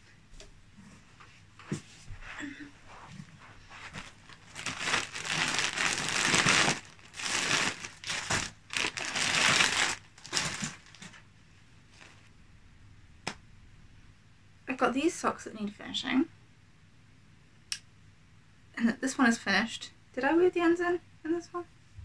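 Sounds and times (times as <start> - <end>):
plastic bag crinkling and rustling: 3.7 - 11.2, 11.9 - 12.3.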